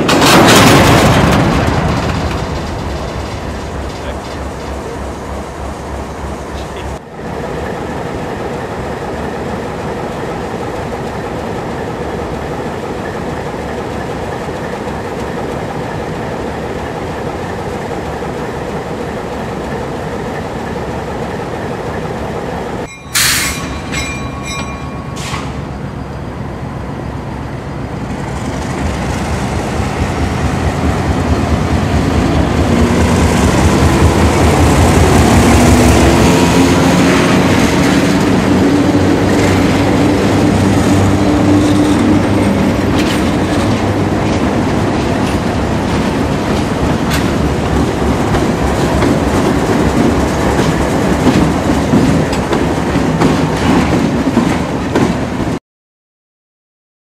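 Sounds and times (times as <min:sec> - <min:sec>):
diesel engines rumbling: 0:00.0 - 0:12.7, 0:21.6 - 0:53.3
high metallic squeal: 0:22.9 - 0:26.2.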